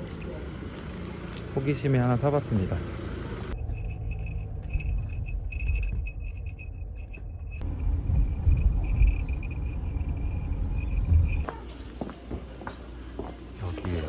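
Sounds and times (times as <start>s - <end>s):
low rumble: 3.5s - 11.5s
small jingle bell jingling: 3.6s - 7.7s, 8.4s - 11.7s.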